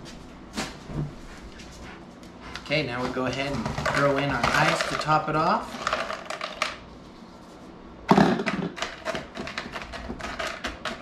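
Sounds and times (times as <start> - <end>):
ice cubes clattering into blender jar: 3.4 - 6.8.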